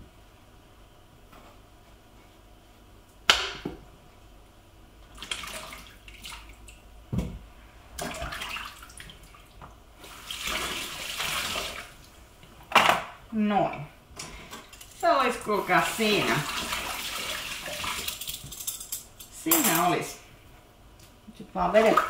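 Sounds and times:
water splashing in sink: 5.1 - 6.8, 8.0 - 12.1, 15.0 - 18.5, 21.6 - 22.0.

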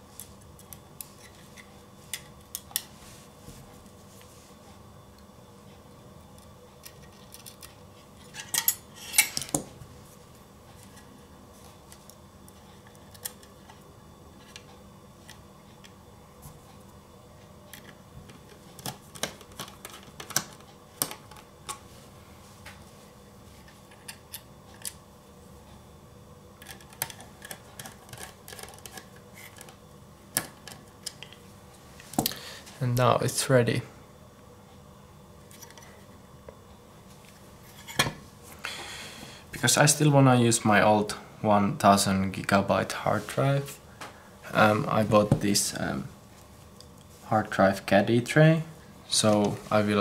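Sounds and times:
screwdriver and hard drive clatter: 26.6 - 29.7.

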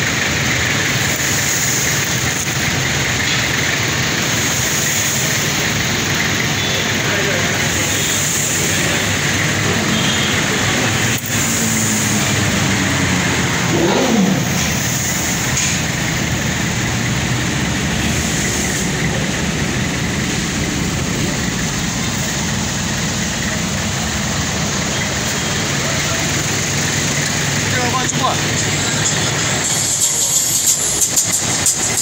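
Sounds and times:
street traffic: 0.0 - 32.0
vehicle engine idling: 0.0 - 32.0.

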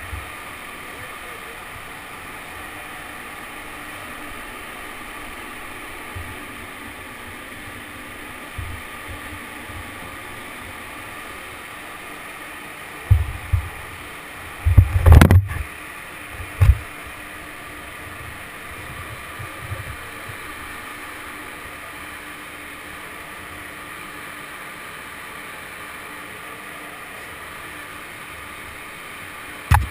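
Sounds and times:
ship engines droning: 0.0 - 14.8.

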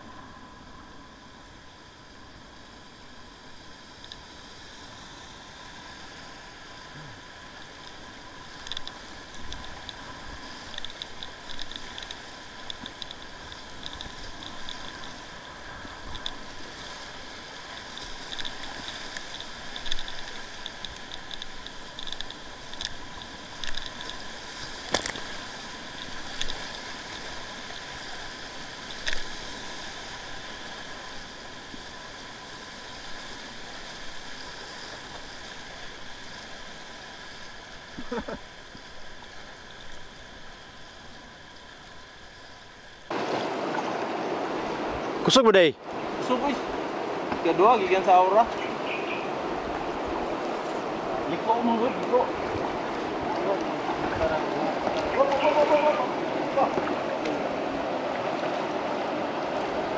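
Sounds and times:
water splashes: 2.4 - 59.9
paddle strokes: 3.9 - 59.9
whitewater rapids rushing: 43.1 - 59.9.

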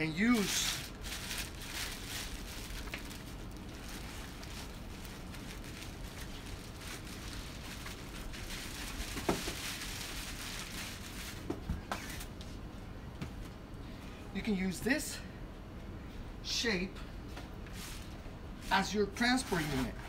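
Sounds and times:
plastic wrapping crinkling: 0.2 - 12.3.

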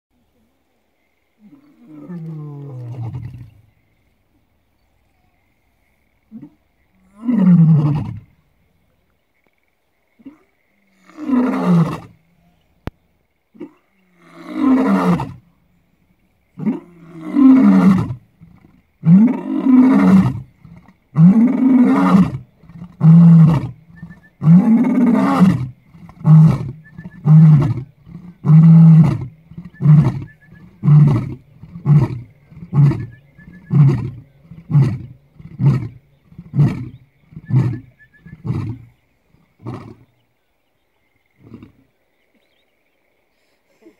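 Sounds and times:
lion roaring: 16.6 - 23.8, 24.4 - 38.9
lion grunting roars: 24.4 - 38.9.

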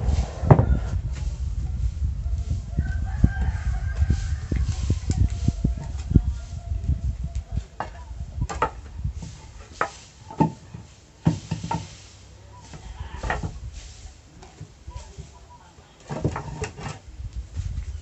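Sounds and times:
wooden boards knocking and scraping: 7.6 - 12.0, 12.7 - 13.6, 16.0 - 17.1.

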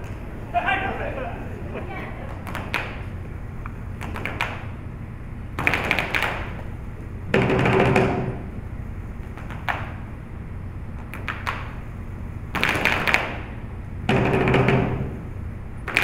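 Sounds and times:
weighted balls striking stage floor: 2.2 - 4.8, 5.5 - 8.6, 9.2 - 10.1, 10.9 - 11.8, 12.5 - 16.0.

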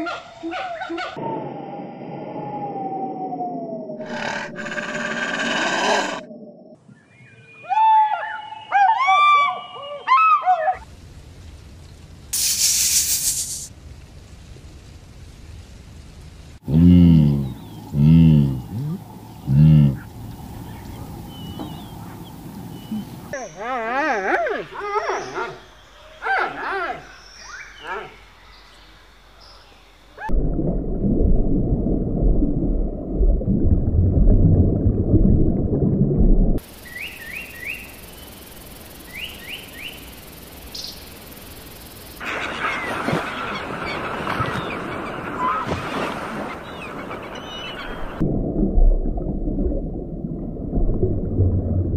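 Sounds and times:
snake hissing: 4.0 - 6.2, 12.4 - 13.7
faint bird chirp: 18.6 - 26.3
underwater rush of water: 30.3 - 37.0.

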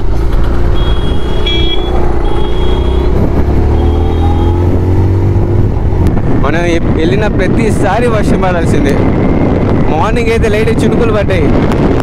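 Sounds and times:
motorcycle engine accelerating: 0.0 - 7.0.

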